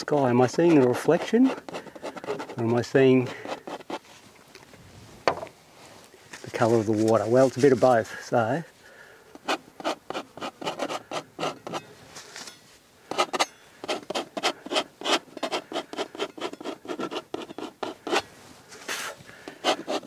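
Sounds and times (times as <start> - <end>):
palette knife scraping on canvas: 0.4 - 4.0, 9.4 - 11.8, 13.1 - 18.3, 18.9 - 20.0.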